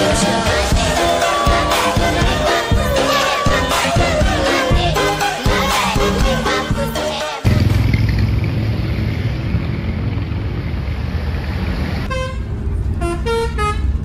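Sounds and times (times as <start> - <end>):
multi-tone bus horn: 12.0 - 14.0.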